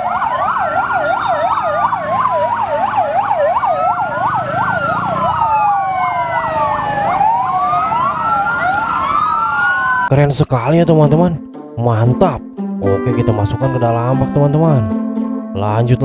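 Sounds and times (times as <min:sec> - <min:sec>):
fast yelp siren: 0:00.0 - 0:10.1
wailing sirens: 0:00.0 - 0:10.1.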